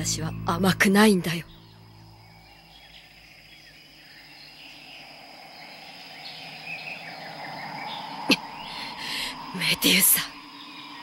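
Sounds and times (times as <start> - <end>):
insects chirping: 0.0 - 11.0.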